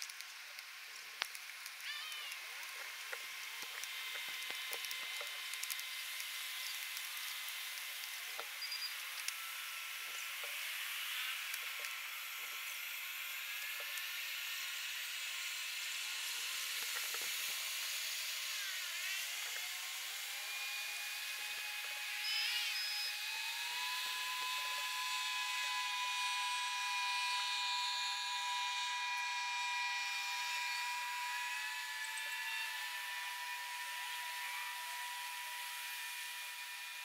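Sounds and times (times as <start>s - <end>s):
squeaky chirps and clicks: 8.0s - 9.4s, 22.2s - 23.1s.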